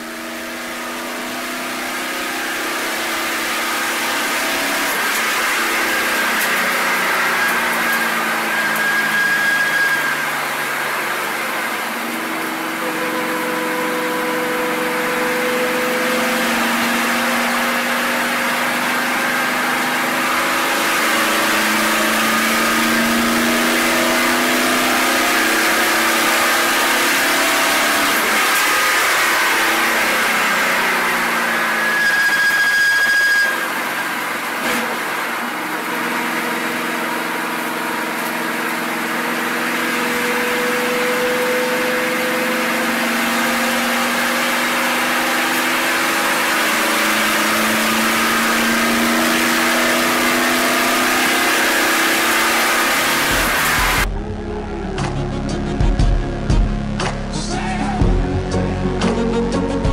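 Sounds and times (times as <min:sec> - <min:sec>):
race car engine at speed: 0:00.0 - 0:59.9.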